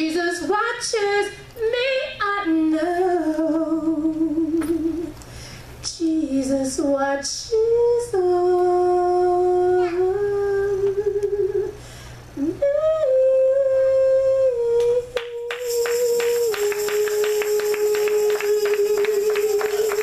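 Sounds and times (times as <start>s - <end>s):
person singing slow tune: 5.9s - 20.0s.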